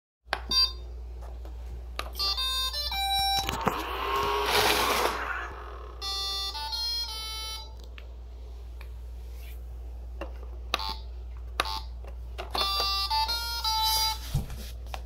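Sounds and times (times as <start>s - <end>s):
robot vacuum beeping tones: 3.0s - 6.4s
robot vacuum motors running: 3.5s - 6.0s.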